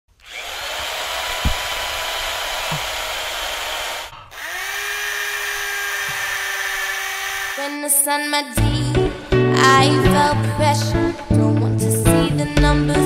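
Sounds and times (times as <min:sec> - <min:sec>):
power tool motor whining: 0:00.1 - 0:07.8
dull thump: 0:01.3 - 0:01.8.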